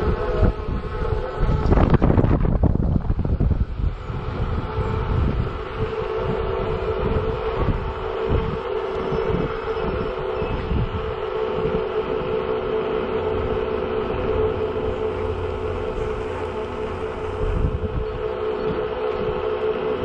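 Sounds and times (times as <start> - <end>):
electric scooter motor whining: 0.0 - 20.0
uneven low rumble: 0.0 - 20.0.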